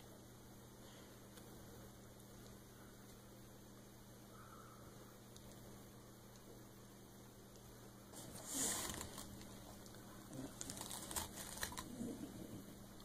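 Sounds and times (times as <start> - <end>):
faint steady hum: 0.0 - 13.0
crackly snaps and rustles: 5.3 - 6.6, 7.5 - 13.0
mesh sponge ripping: 8.2 - 9.5, 10.4 - 12.0.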